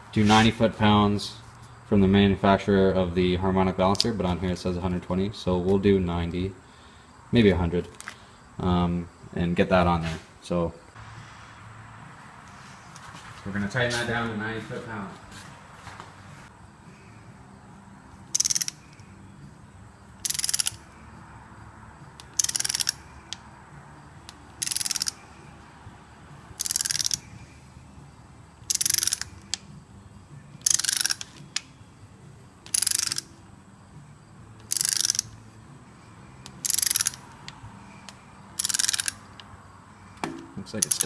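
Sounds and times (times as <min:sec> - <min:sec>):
ratchet wrench clicking: 0:18.3 - 0:19.1, 0:20.2 - 0:21.0, 0:22.2 - 0:23.4, 0:24.2 - 0:25.2, 0:26.6 - 0:27.4, 0:28.6 - 0:29.7, 0:30.6 - 0:31.7, 0:32.6 - 0:33.4, 0:34.6 - 0:35.4, 0:36.4 - 0:39.5, 0:40.8 - 0:41.0.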